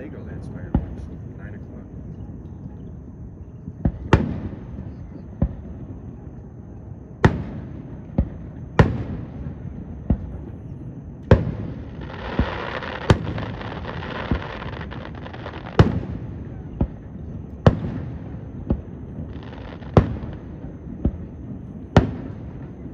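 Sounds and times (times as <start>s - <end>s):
fireworks booming: 0.0s - 22.9s
fireworks crackling: 3.8s - 6.1s, 7.2s - 22.9s.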